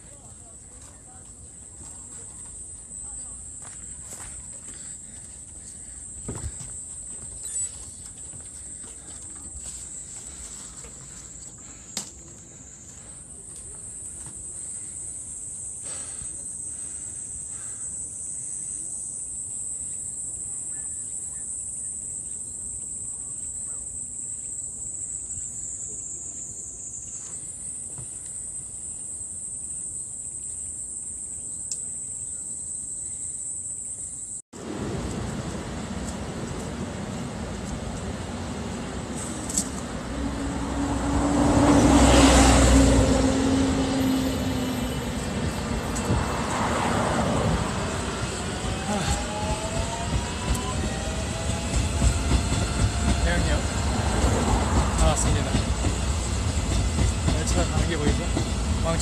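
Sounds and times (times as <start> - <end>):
high-pitched insect drone: 13.4 - 34.4.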